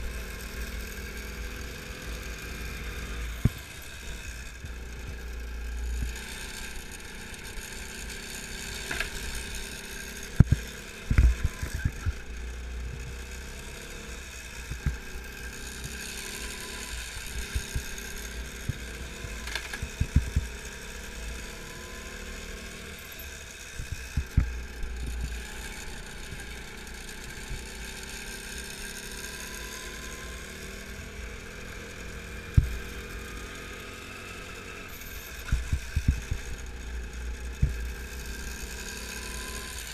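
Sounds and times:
go-kart engine revving: 0.0s - 39.9s.

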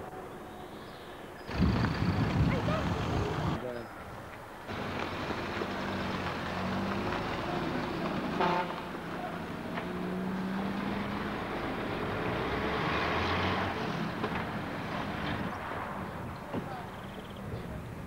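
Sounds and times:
car engine driving past: 4.7s - 16.2s
car horn toot: 8.4s - 8.9s.

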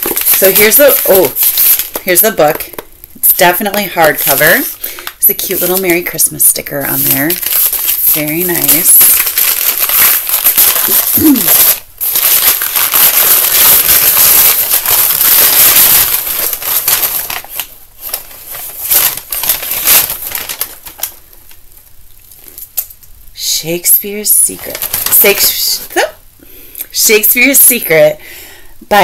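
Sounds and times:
paper wrapping crinkling: 0.0s - 23.0s, 24.5s - 25.9s.

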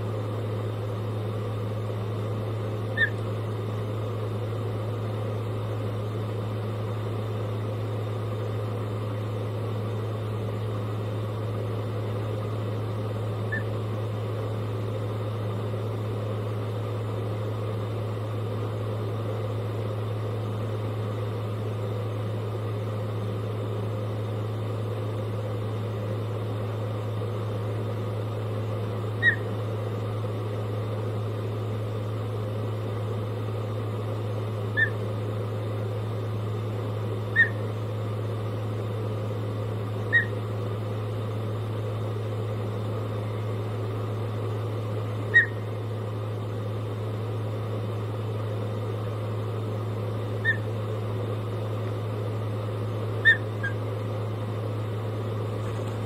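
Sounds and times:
steady low hum: 0.0s - 56.0s
bird whistled chirps: 2.9s - 3.2s, 13.5s - 13.7s, 29.2s - 29.5s, 34.8s - 35.0s, 37.3s - 37.6s, 40.1s - 40.4s, 45.3s - 45.6s, 50.4s - 50.7s, 53.2s - 53.8s.

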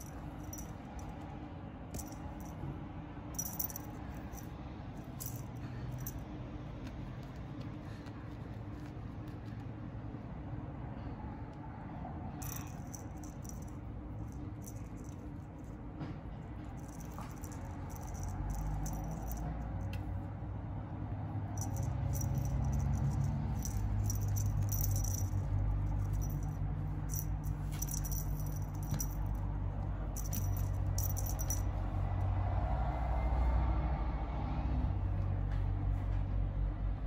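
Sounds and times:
hanging toys rattling and jingling: 0.0s - 1.2s, 1.9s - 2.7s, 3.3s - 6.3s, 12.4s - 15.8s, 16.6s - 20.0s, 21.5s - 31.9s
steady low rumble: 21.4s - 32.2s.

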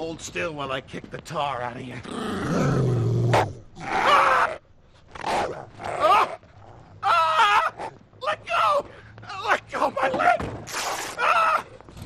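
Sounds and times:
man yelling and groaning: 7.0s - 10.4s.

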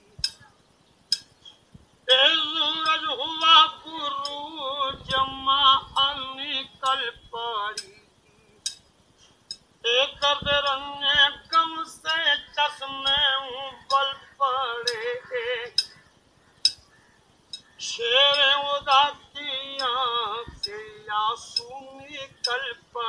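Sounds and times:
elderly man singing: 2.0s - 8.1s, 9.8s - 16.2s, 17.7s - 23.0s.

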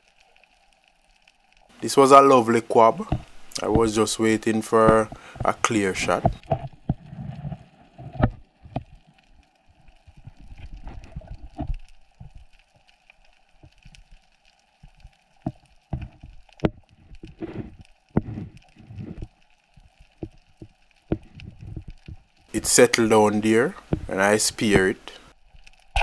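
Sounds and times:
faint steady hiss: 0.0s - 26.0s
muffled underwater thumps: 3.0s - 4.1s, 4.8s - 9.0s, 15.9s - 19.3s, 20.2s - 22.3s, 23.8s - 24.1s.

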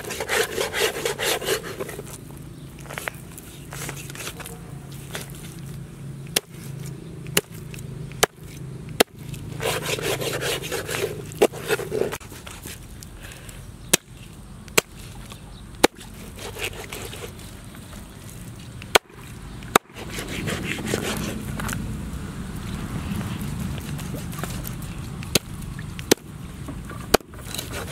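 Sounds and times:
scraping and rustling: 0.0s - 5.8s, 9.2s - 13.6s, 15.0s - 21.9s, 22.6s - 25.9s, 26.5s - 27.9s.

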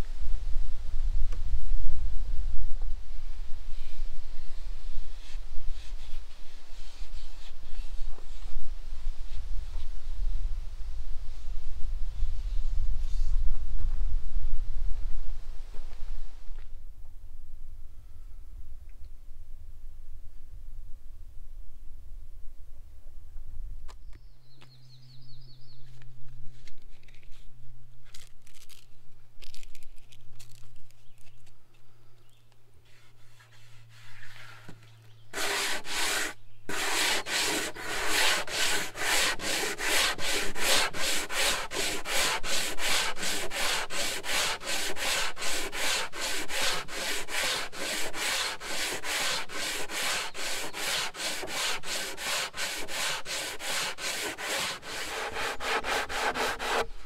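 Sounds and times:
sanding block rubbing wood: 32.9s - 34.6s, 35.3s - 56.9s.

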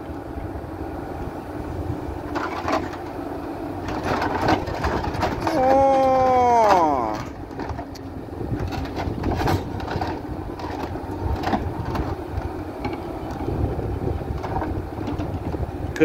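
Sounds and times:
diesel engine running under load: 0.0s - 16.0s
tracks clanking on metal ramps: 3.8s - 13.4s.

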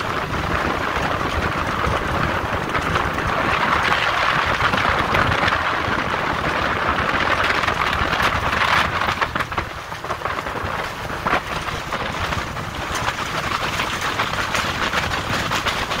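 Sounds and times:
water slapping hull: 0.0s - 16.0s
wind and water rushing against hull: 0.0s - 16.0s.

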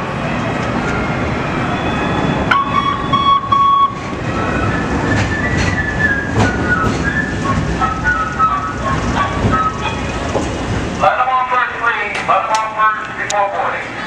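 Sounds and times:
high squealing of train: 0.0s - 11.0s
train rumbling into station: 0.0s - 14.0s.

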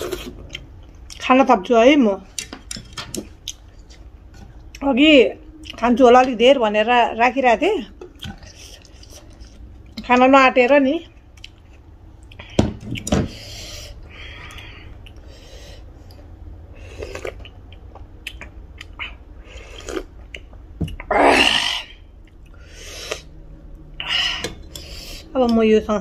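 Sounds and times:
soft mouth noises: 16.0s - 21.1s.

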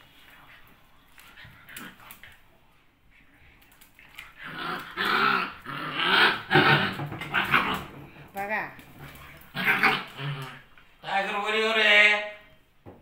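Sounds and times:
faint small noises: 0.0s - 13.0s
dog growling: 4.0s - 8.2s, 9.0s - 11.3s.

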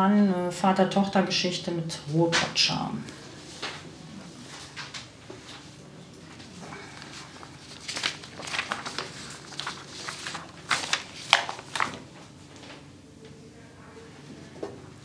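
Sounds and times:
paper rustling: 3.4s - 12.9s.

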